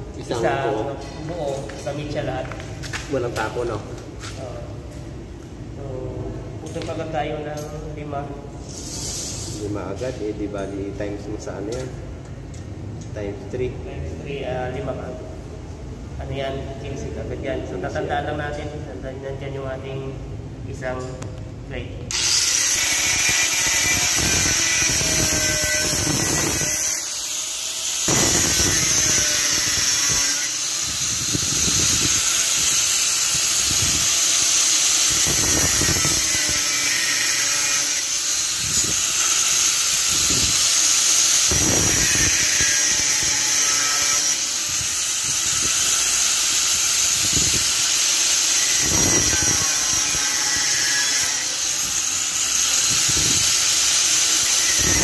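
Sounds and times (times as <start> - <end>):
angle grinder cutting steel: 22.1 - 55.0.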